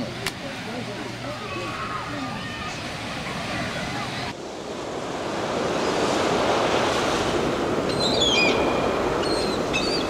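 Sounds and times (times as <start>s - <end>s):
sea surf rushing: 0.0s - 10.0s
high chirping bird calls: 7.9s - 10.0s.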